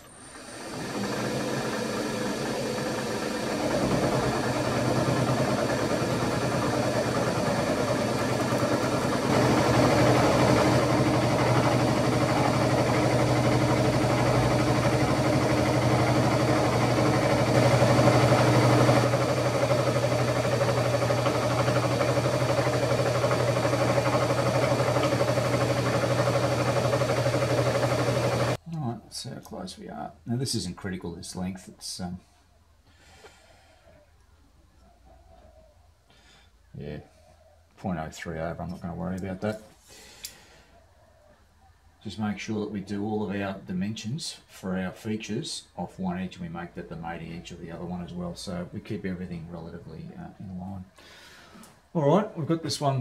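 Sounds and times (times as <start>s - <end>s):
milling machine hum: 0.0s - 28.6s.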